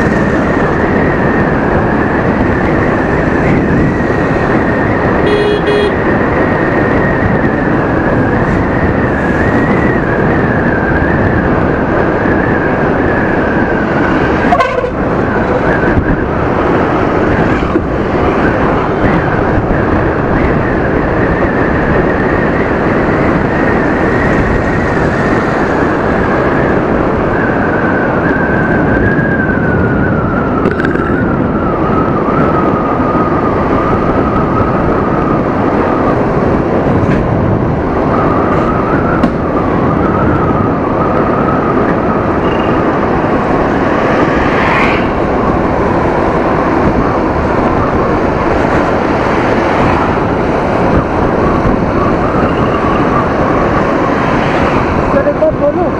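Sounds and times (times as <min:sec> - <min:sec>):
wind on microphone: 0:00.0 - 0:55.9
scooter horn beep: 0:05.2 - 0:06.0.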